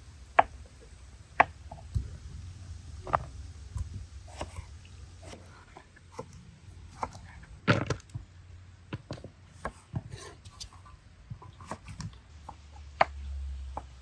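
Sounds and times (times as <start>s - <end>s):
low rumble: 1.8s - 5.8s.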